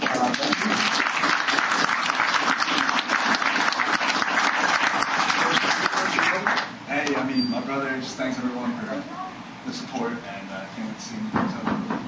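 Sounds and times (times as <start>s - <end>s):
audience applauding: 0.0s - 6.8s.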